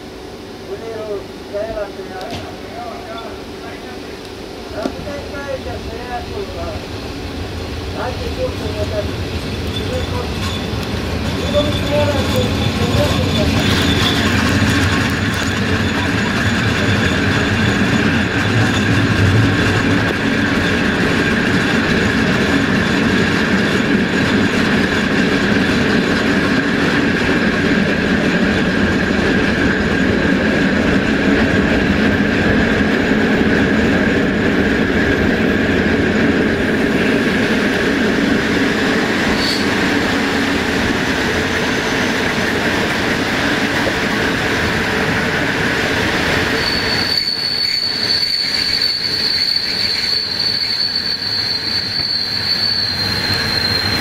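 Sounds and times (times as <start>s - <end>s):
train running noise: 0.0s - 54.0s
high wheel squeal: 8.6s - 25.1s, 39.3s - 40.2s, 41.3s - 42.3s, 46.3s - 54.0s.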